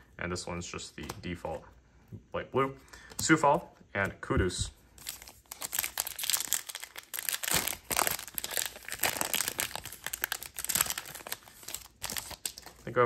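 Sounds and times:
card pack wrapper crinkling: 0:05.0 - 0:13.0.

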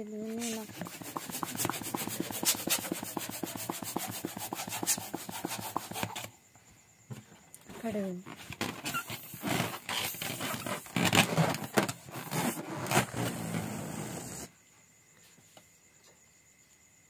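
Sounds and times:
close rustling and knocking: 0:00.2 - 0:13.7.

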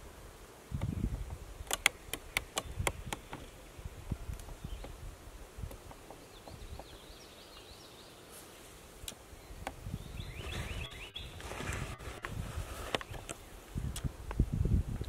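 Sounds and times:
faint songbird chirps: 0:01.8 - 0:05.1, 0:05.8 - 0:12.3.

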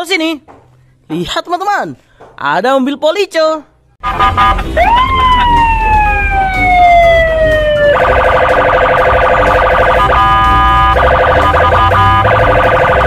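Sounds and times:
road traffic rumble: 0:04.0 - 0:12.9
police siren wailing: 0:04.0 - 0:13.0.

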